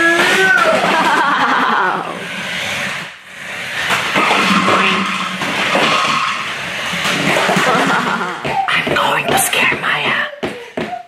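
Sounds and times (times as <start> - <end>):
tyres skidding on wood: 2.2 - 9.4.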